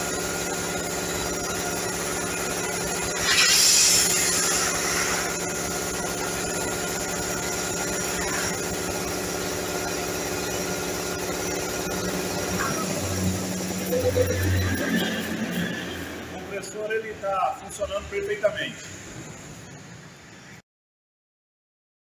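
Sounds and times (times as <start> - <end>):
air compressor running: 0.0 - 19.8
air hissing: 2.9 - 6.6.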